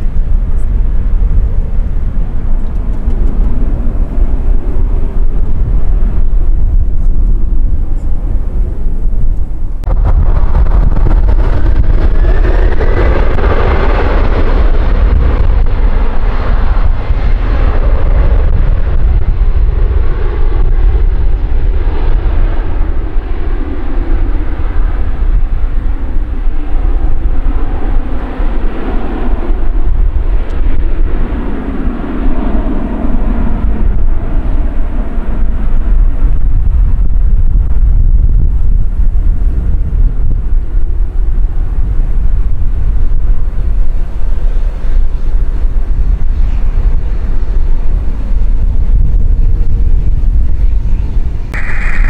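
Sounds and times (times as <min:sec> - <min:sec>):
jet engines at take-off: 0:00.0 - 0:52.0
wind buffeting microphone: 0:00.0 - 0:52.0.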